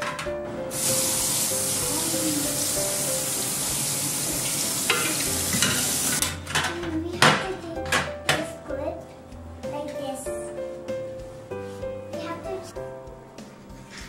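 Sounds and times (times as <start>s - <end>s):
tap water running onto metal: 0.7s - 6.4s.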